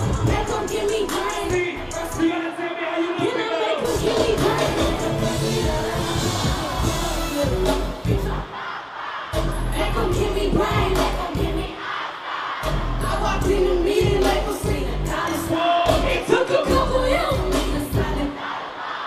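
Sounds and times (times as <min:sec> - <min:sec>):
bass-heavy beat: 0:00.0 - 0:02.3, 0:03.8 - 0:08.4, 0:09.4 - 0:11.7, 0:12.6 - 0:18.3
woman rapping: 0:00.0 - 0:06.4, 0:09.7 - 0:11.8, 0:13.0 - 0:18.4.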